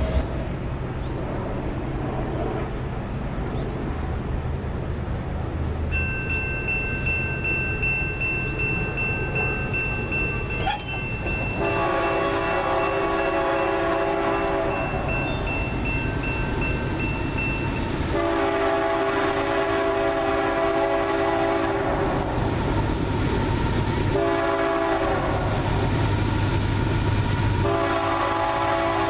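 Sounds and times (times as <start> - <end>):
train rumbling: 0.0 - 29.0
train air horn blasts: 11.5 - 15.0, 18.1 - 22.1, 24.1 - 25.5, 27.6 - 29.0.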